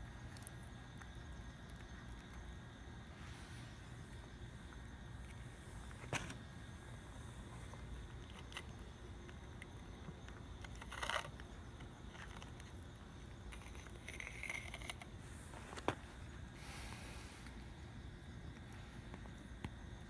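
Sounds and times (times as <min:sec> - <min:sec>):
cat eating from a bowl: 0:07.3 - 0:15.2.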